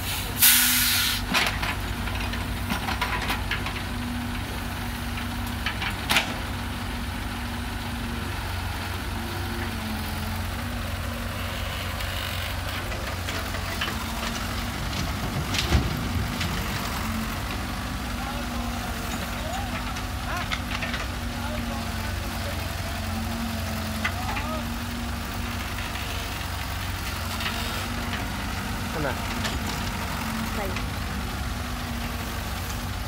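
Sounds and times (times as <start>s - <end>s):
loud hiss: 0.0s - 1.3s
diesel engine running: 0.0s - 33.0s.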